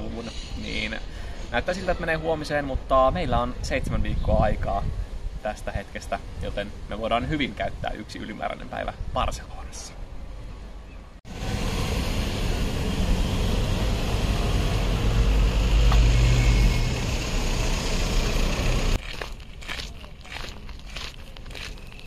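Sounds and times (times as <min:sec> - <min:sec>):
vehicle rumble and road noise: 0:04.4 - 0:22.0.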